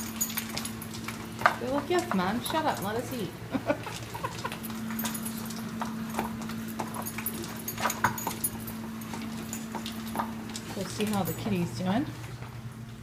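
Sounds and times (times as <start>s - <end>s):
dogs crunching kibble: 0.0s - 13.0s
steady low hum: 0.0s - 13.0s
dogs licking: 3.6s - 11.3s.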